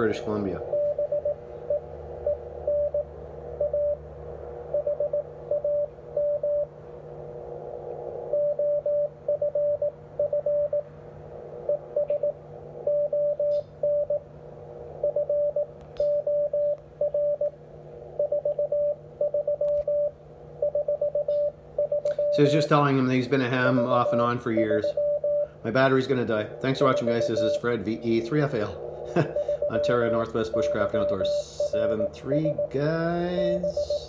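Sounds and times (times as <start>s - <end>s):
faint low hum: 0.0s - 34.0s
morse code tone: 0.6s - 4.0s, 4.7s - 6.7s, 8.3s - 10.9s, 11.7s - 14.2s, 15.0s - 17.5s, 18.2s - 34.0s
radio band hiss: 25.5s - 34.0s.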